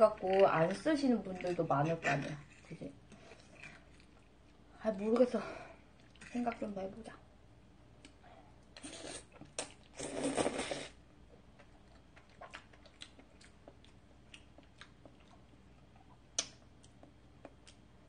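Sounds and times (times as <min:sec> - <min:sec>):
quiet chewing with mouth clicks: 0:00.1 - 0:06.7, 0:11.3 - 0:18.0
pasta slurped: 0:08.8 - 0:11.0.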